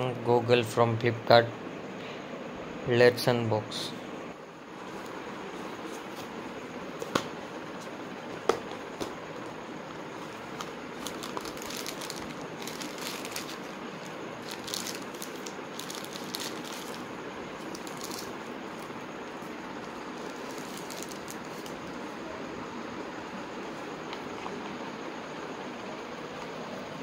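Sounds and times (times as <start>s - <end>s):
steady background hiss: 0.0s - 27.0s
plastic wrapping crinkling: 9.0s - 21.9s.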